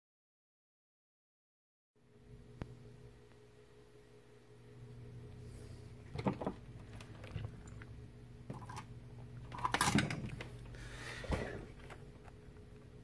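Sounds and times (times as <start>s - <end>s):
low electrical hum: 2.0s - 13.0s
multimeter set down on bench: 9.6s - 10.4s.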